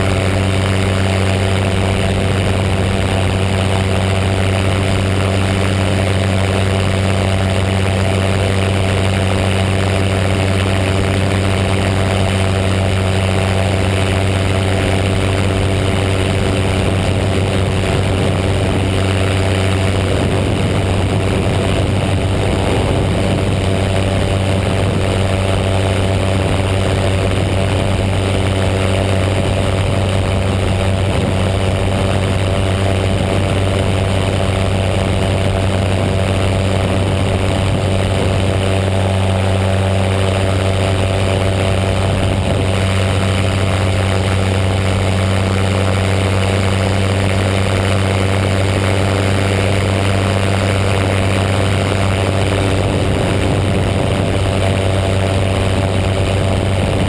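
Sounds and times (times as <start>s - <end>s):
paramotor engine droning: 0.0s - 57.0s
wind rushing over microphone: 0.0s - 57.0s.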